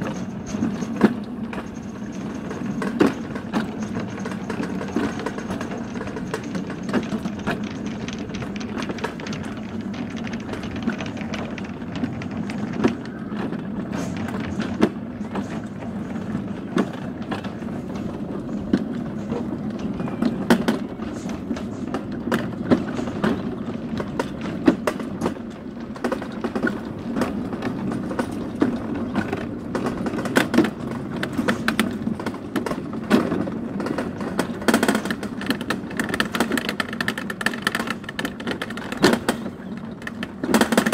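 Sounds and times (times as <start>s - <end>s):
sharp knocks and rattles: 0.0s - 40.9s
sled rolling rumble: 0.0s - 40.9s.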